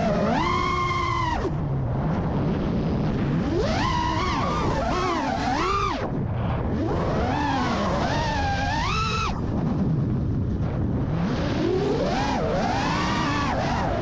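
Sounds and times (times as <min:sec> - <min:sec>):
quadcopter motors whining: 0:00.0 - 0:01.7, 0:03.2 - 0:06.1, 0:06.7 - 0:09.5, 0:11.2 - 0:14.0.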